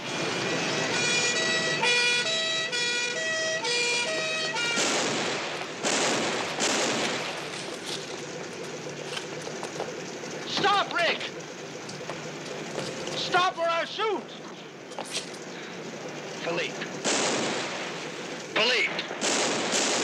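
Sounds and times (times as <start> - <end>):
two-tone police siren: 0.0 - 5.7.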